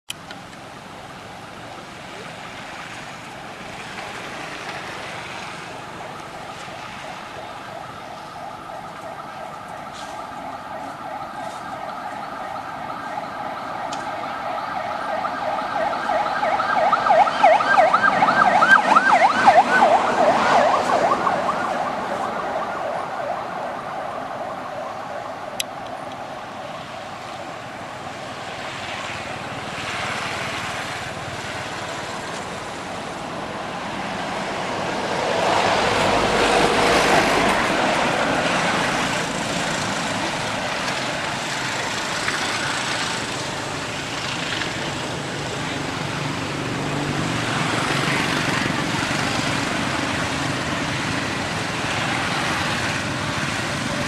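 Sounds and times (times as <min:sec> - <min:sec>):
passing vehicle droning: 0:02.0 - 0:25.3, 0:26.9 - 0:54.0.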